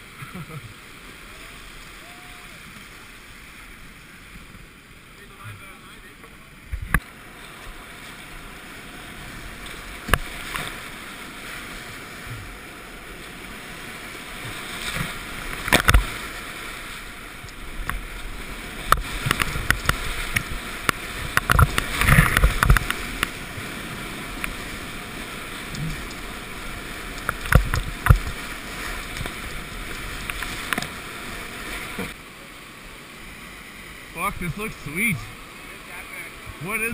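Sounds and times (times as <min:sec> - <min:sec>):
water splashes: 0:00.0 - 0:36.9
whitewater rapids roaring: 0:00.0 - 0:36.9
paddle strokes: 0:01.3 - 0:32.2.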